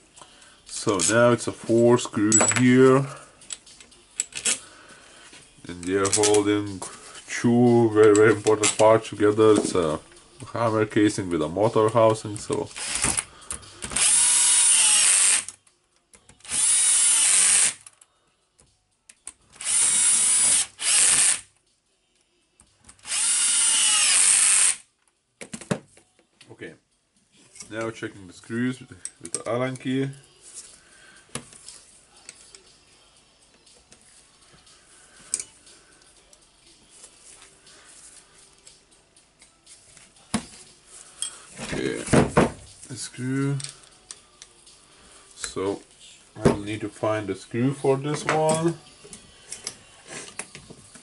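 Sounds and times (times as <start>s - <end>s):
cordless drill running: 12.8s - 13.1s, 14.0s - 15.5s, 16.5s - 17.8s, 19.6s - 21.4s, 23.0s - 24.8s.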